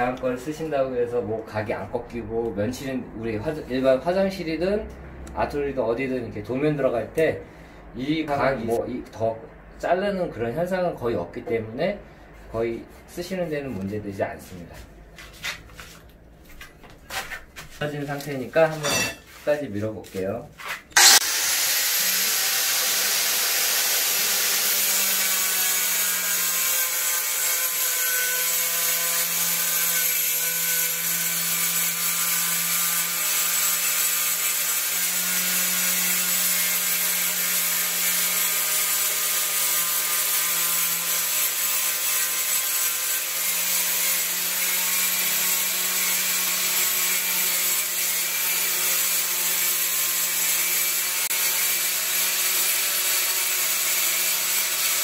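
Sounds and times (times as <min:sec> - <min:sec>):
angle grinder grinding tile: 0:18.7 - 0:19.5, 0:20.6 - 0:55.0.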